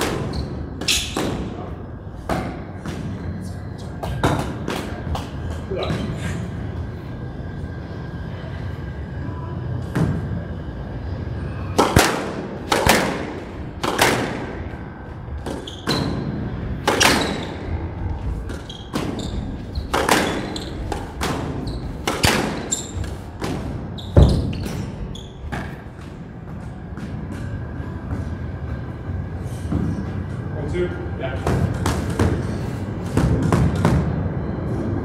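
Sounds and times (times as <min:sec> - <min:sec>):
squash ball hits: 0:00.0 - 0:03.3, 0:04.0 - 0:05.3, 0:11.8 - 0:14.7, 0:15.4 - 0:17.7, 0:18.4 - 0:26.1, 0:33.0 - 0:34.0
steady low rumble: 0:00.7 - 0:15.6, 0:17.5 - 0:20.0.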